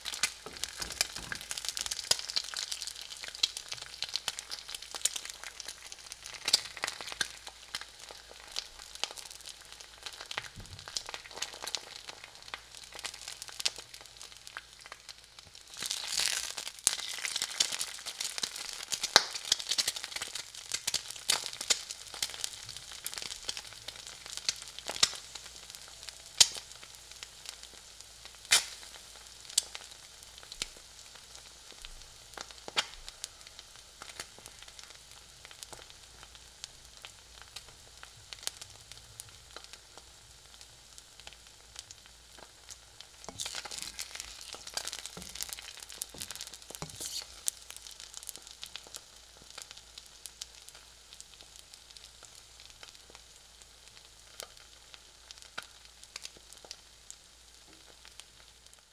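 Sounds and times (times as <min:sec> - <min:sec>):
eggs sizzling in a pan: 0:00.0 - 0:58.9
oil popping and crackling: 0:00.0 - 0:58.9.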